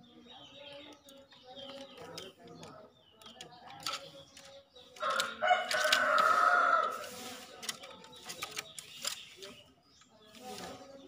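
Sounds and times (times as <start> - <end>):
rooster crowing: 5.0 - 7.1.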